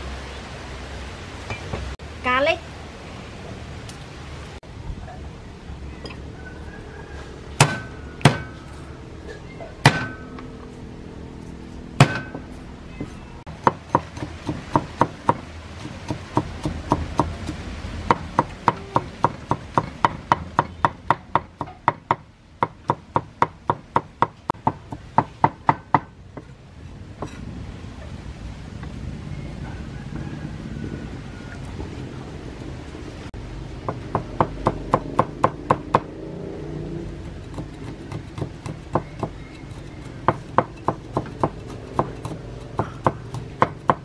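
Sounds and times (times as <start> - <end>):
cleaver chopping on wooden board: 7.6 - 8.6, 9.8 - 10.3, 12.0 - 12.5, 13.6 - 26.5, 37.5 - 44.0.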